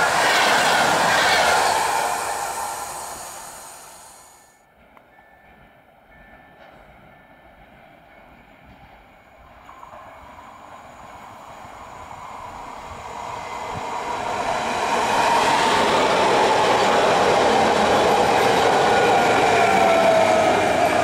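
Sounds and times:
train motor whine: 0:00.0 - 0:04.5
train wheels rumbling on rails: 0:00.0 - 0:21.0.

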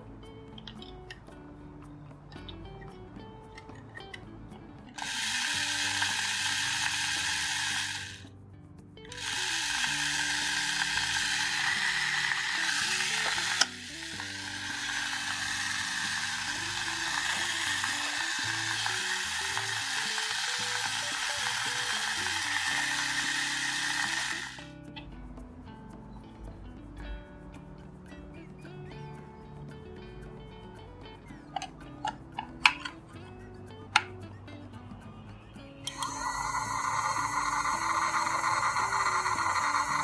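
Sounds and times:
soft background music: 0:00.0 - 0:40.0
toy vacuum motor whirring: 0:04.9 - 0:08.3, 0:09.1 - 0:24.8, 0:35.6 - 0:40.0.

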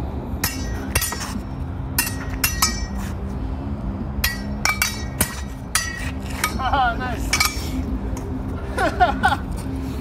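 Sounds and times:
steel swords clashing: 0:00.4 - 0:03.2, 0:04.2 - 0:08.0.

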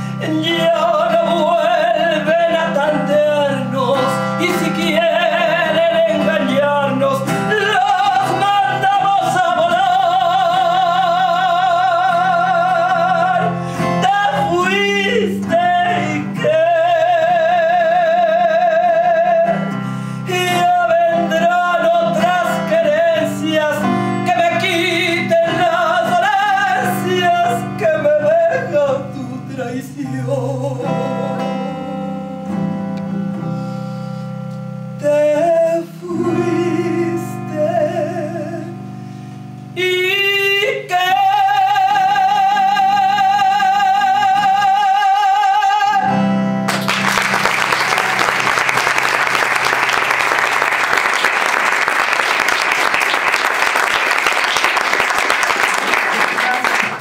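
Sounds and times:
woman singing: 0:00.0 - 0:32.2, 0:35.0 - 0:38.9, 0:39.7 - 0:46.3
guitar accompaniment: 0:00.0 - 0:57.0
audience applause: 0:46.7 - 0:57.0.

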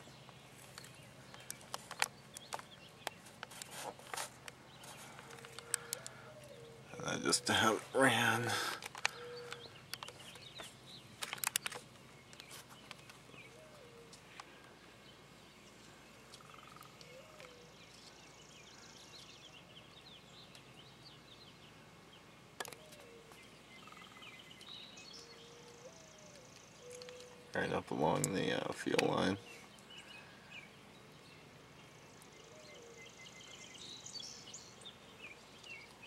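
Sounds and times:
birds chirping: 0:00.0 - 0:36.0
low hoots: 0:05.0 - 0:09.9
sharp clicks: 0:11.2 - 0:13.2.

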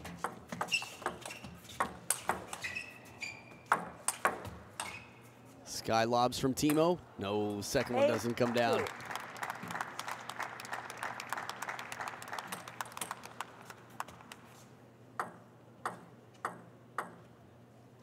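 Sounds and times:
table tennis ball bouncing: 0:03.6 - 0:04.9, 0:15.2 - 0:17.3
audience applause: 0:07.6 - 0:14.5.

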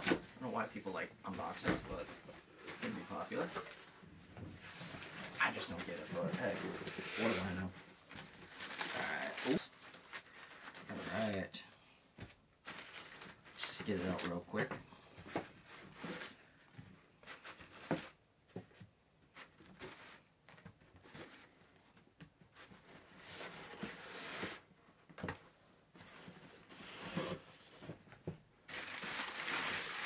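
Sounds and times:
packing paper rustling: 0:04.6 - 0:11.4, 0:28.7 - 0:30.0.

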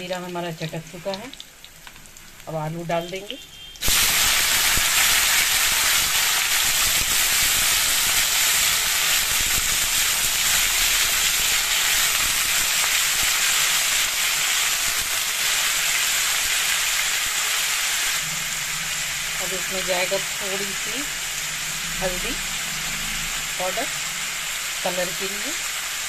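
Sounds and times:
potatoes sizzling in oil: 0:00.0 - 0:26.0.

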